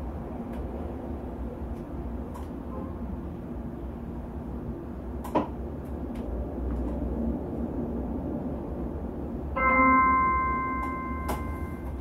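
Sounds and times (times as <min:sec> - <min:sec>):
low steady hum: 0:00.0 - 0:12.0
computer chime: 0:09.6 - 0:12.0.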